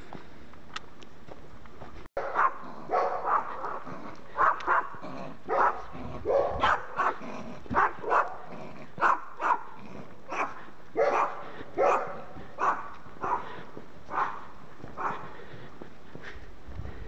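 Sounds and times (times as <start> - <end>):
dog barking: 2.2 - 15.3.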